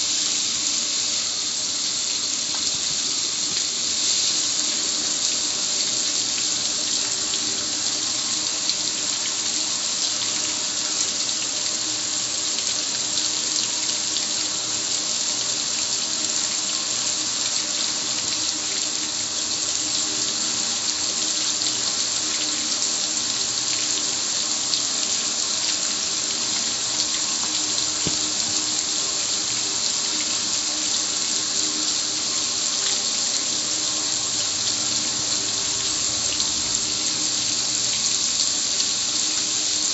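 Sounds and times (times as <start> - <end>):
water spraying on metal grill: 0.0 - 11.4, 23.9 - 30.1.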